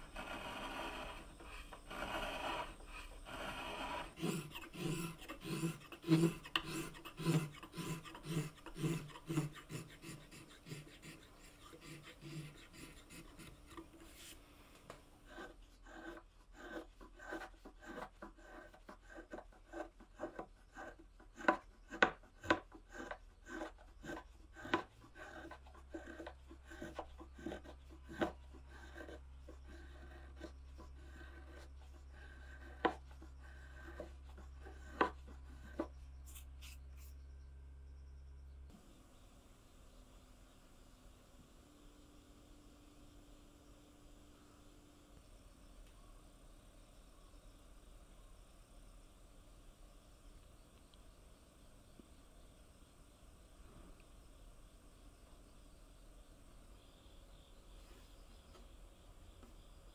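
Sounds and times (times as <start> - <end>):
spokeshave shaving wood: 0.0 - 14.5, 15.2 - 36.8.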